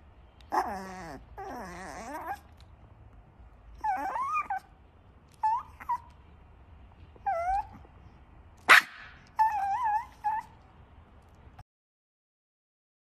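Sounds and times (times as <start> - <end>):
puppy whimpering: 0.5 - 2.6, 3.8 - 4.7, 5.3 - 6.2, 7.2 - 7.9, 9.2 - 10.6.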